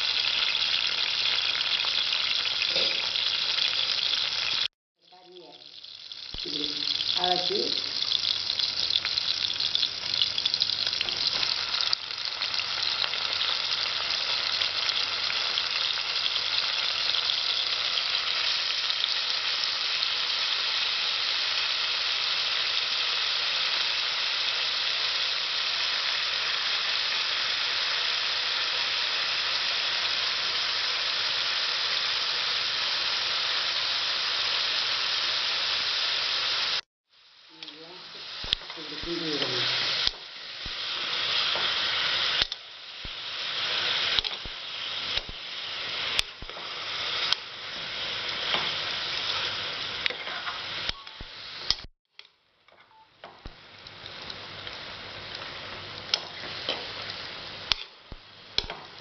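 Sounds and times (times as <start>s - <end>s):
food sizzling in hot oil: 0.0s - 51.9s, 52.9s - 59.0s.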